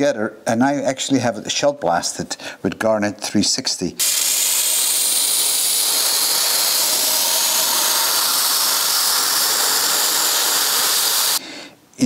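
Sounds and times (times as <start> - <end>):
sandblasting gun hissing: 4.0 - 11.4.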